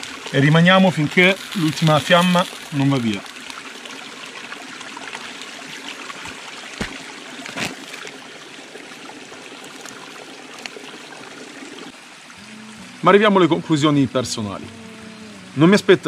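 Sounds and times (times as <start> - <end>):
stream trickling over rocks: 0.0 - 16.0.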